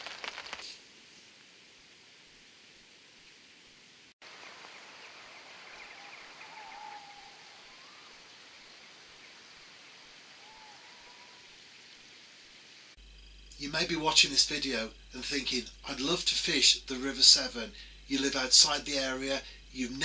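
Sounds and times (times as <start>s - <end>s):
steady outdoor hiss: 0.0s - 20.0s
faint bird calls: 4.3s - 12.2s.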